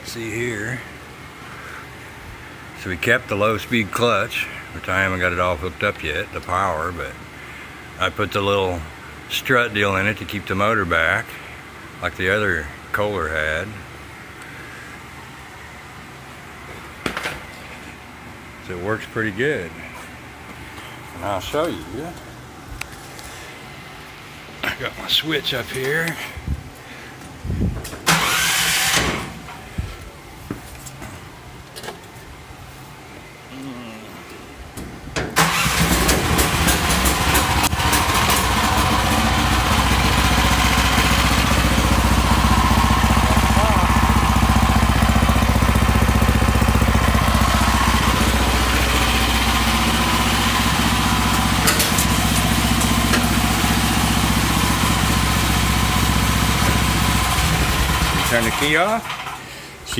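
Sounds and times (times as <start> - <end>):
engine starting and idling: 28.0 - 29.6, 35.3 - 59.7.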